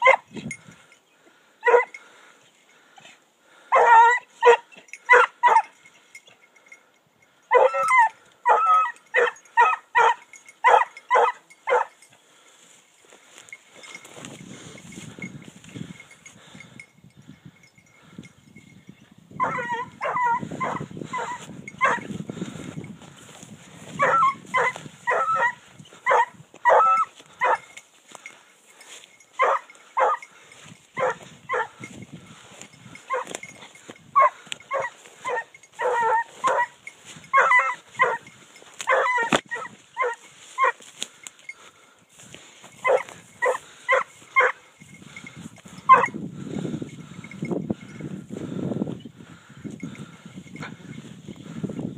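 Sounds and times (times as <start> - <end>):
hound baying barks: 0.0 - 0.3, 1.6 - 2.0, 3.7 - 5.8, 7.5 - 12.0, 19.4 - 22.1, 23.9 - 27.8, 29.4 - 31.8, 32.9 - 40.8, 42.8 - 44.7, 45.9 - 46.2.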